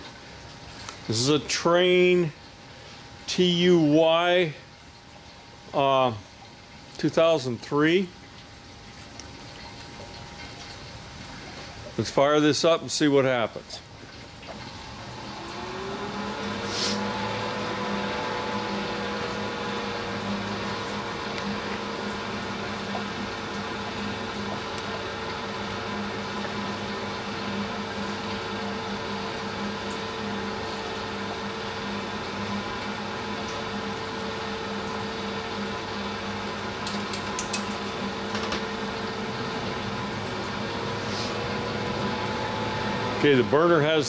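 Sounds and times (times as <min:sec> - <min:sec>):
furnace blower running: 0:00.7 - 0:04.7, 0:14.5 - 0:44.0.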